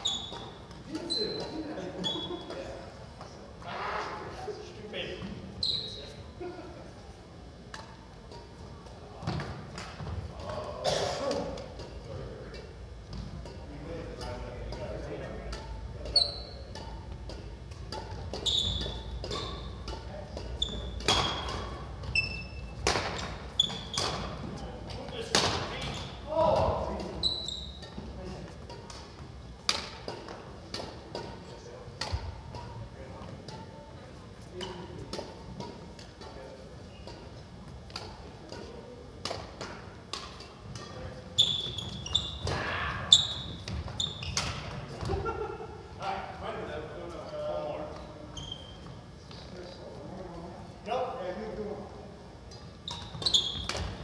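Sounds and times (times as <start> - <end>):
shoes squeaking on wooden floor: 0.0 - 2.4, 5.6 - 6.2, 16.1 - 16.7, 18.3 - 19.9, 20.5 - 24.8, 25.8 - 28.0, 41.4 - 45.0, 48.0 - 49.2, 52.8 - 54.0
rackets hitting shuttlecock: 7.5 - 33.8, 34.5 - 45.3, 52.5 - 54.0.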